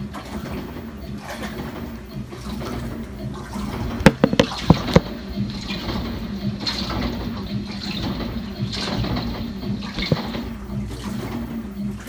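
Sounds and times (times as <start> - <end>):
washing machine motor hum: 0.0 - 12.0
water sloshing in washer tub: 0.0 - 12.0
sharp knocks: 4.0 - 5.2, 8.0 - 10.6.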